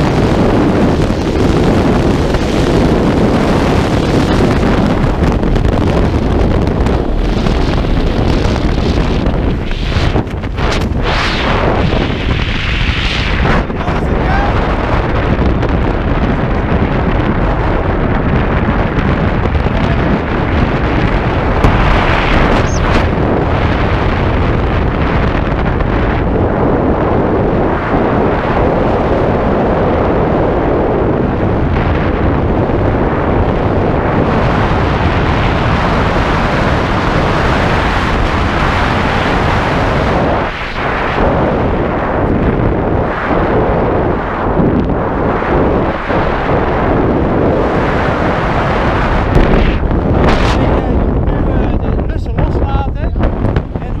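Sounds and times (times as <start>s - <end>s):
wind roaring over microphone: 0.0s - 54.0s.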